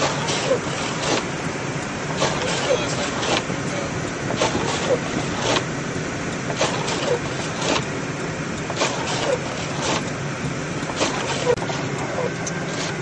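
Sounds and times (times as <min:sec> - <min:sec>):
road and engine noise in car: 0:00.0 - 0:13.0
short squeaks: 0:10.9 - 0:13.0.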